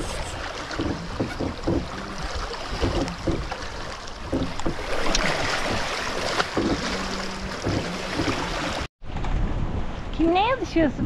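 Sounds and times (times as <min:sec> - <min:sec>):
wake water rushing and splashing: 0:00.0 - 0:08.9
wind buffeting microphone: 0:06.6 - 0:11.0.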